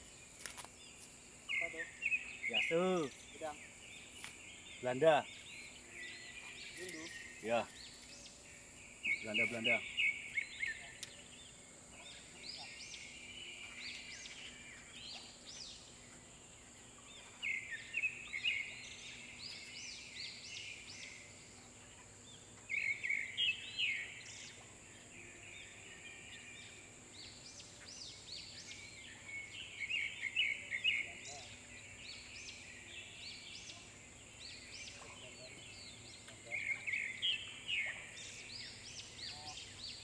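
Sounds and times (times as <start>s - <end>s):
birds chirping: 0.0s - 40.0s.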